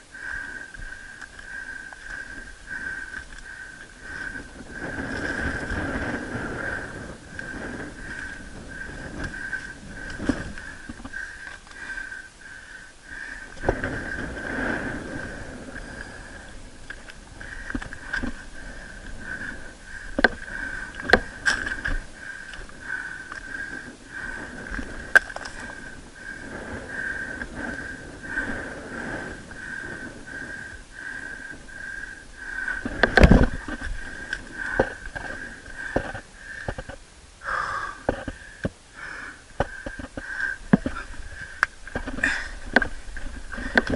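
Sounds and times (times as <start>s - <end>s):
climber breathing: 0.0s - 43.9s
hands and feet scraping on rock: 32.7s - 37.0s.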